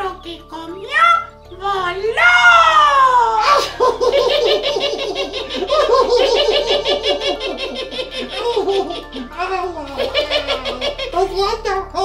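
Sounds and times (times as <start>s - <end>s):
puppet character laughing: 3.4s - 11.4s.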